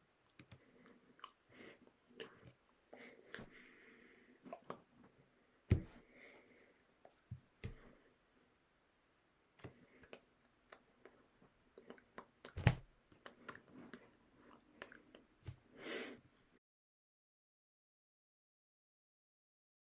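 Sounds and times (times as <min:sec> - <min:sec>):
person breathing: 0:00.5 - 0:07.0, 0:07.6 - 0:08.2, 0:13.4 - 0:16.3
soft low thumps: 0:05.7 - 0:06.0.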